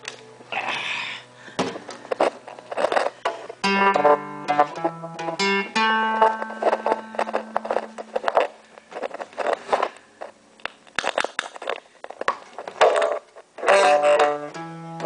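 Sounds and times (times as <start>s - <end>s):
clicks and scrapes on lute: 2.2s - 10.0s, 12.8s - 15.0s
plucked lute note: 3.6s - 8.6s, 13.6s - 15.0s.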